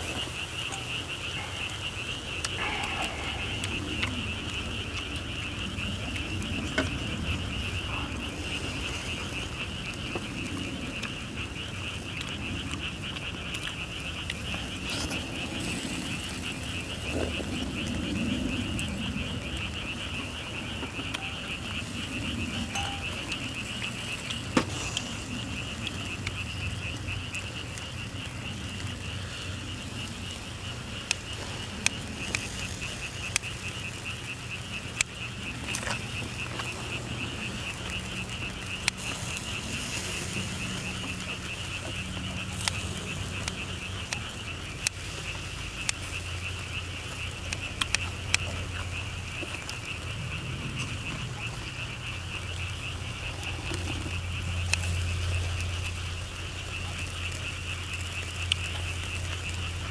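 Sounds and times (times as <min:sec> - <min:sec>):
chorus of calling animals: 0:00.0 - 0:59.9
sharp clicks: 0:47.1 - 0:50.0.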